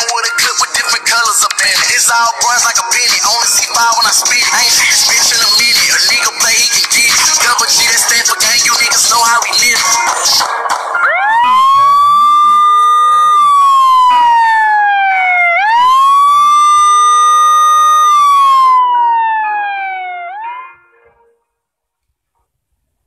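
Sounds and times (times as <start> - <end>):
synthesized siren tone: 11.0 - 21.4.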